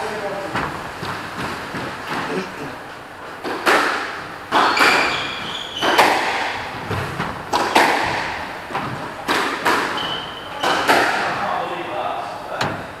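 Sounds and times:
squash ball hits echoing: 3.4 - 11.6
shoes squeaking on wooden floor: 4.6 - 7.5, 8.7 - 11.4.

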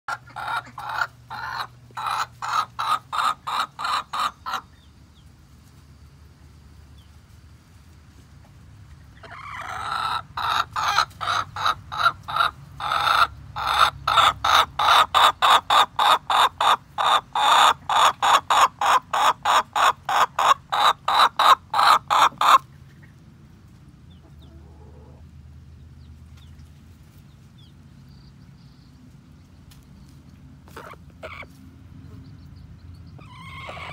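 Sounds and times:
chicken clucking: 0.1 - 5.3, 8.4 - 25.3, 29.5 - 33.9.

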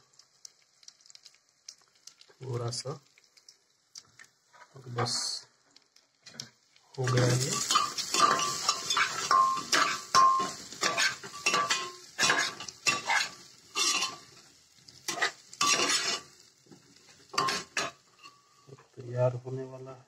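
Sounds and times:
vegetables sizzling: 0.0 - 19.9
metal spoon scraping a pot: 7.1 - 14.3, 15.1 - 16.3, 17.3 - 18.5.

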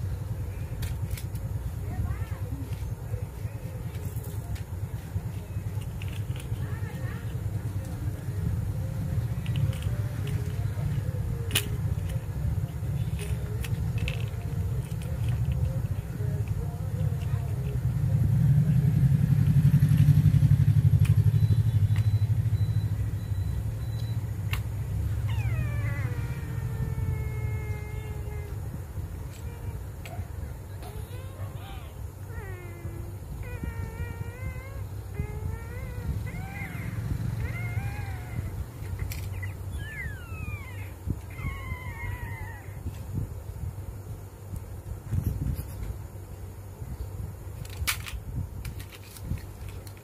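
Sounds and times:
low pulsing engine-like rumble: 0.0 - 44.1
steady low hum: 0.0 - 50.0
plastic toys clicking: 0.7 - 1.6, 3.6 - 20.2, 25.4 - 31.4, 32.2 - 42.6, 47.6 - 50.0
drawn-out animal calls: 25.1 - 42.8.

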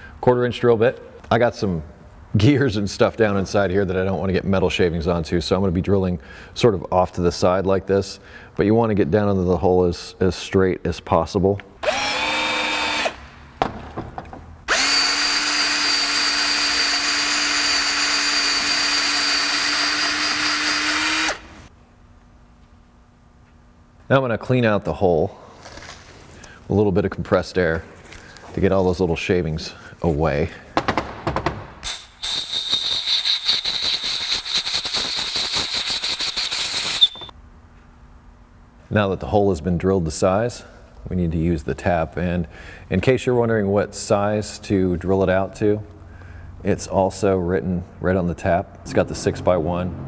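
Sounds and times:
cordless drill drilling aluminium: 11.8 - 13.2, 14.7 - 21.5
drill clicks: 11.8 - 13.2, 14.7 - 21.4
air blow gun hissing: 31.8 - 37.3.

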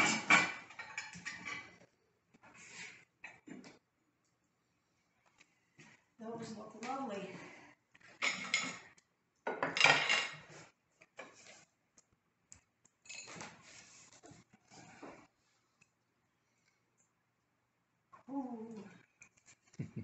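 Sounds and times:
dishes clinking: 0.0 - 1.8, 8.2 - 8.9, 9.5 - 10.5
pans and utensils clattering: 0.0 - 1.8, 8.2 - 8.9, 9.5 - 11.4.

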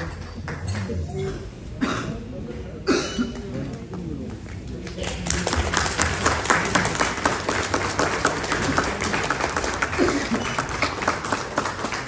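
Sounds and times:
crowd applauding: 4.7 - 12.0.

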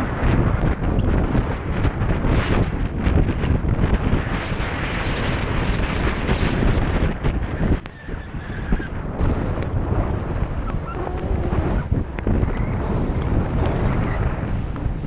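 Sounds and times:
wind buffeting microphone: 0.0 - 15.0
skis sliding on snow: 8.8 - 15.0.

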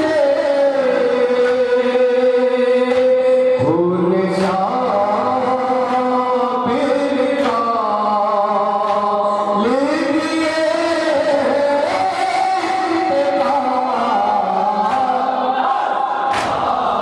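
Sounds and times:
men chanting into a microphone: 0.0 - 17.0.

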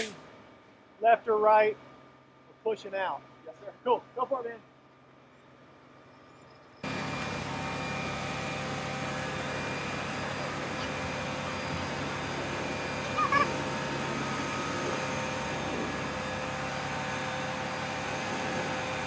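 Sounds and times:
fire truck mechanical hum: 0.0 - 19.0
steady whine: 0.0 - 19.0.

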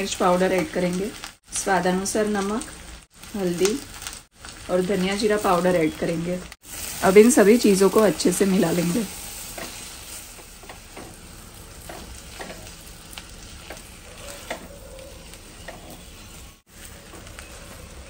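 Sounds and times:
soft sizzle: 0.0 - 18.0
spatula scraping pan: 8.5 - 18.0.

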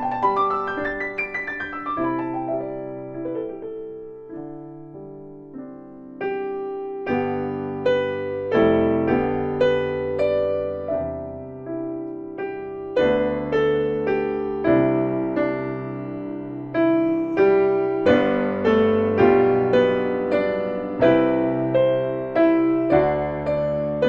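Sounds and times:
slow jazz piano: 0.0 - 24.0.

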